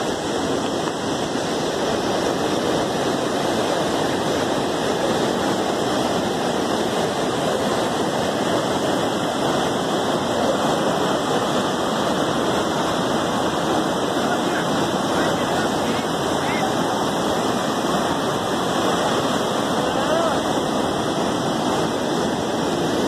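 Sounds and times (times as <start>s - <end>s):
water rushing over rocks: 0.0s - 23.0s.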